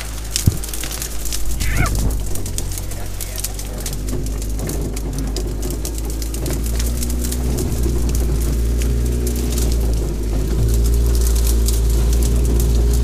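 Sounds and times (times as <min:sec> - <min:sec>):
branches scraping and snapping on car: 0:00.0 - 0:13.0
car engine running at low revs: 0:00.0 - 0:13.0.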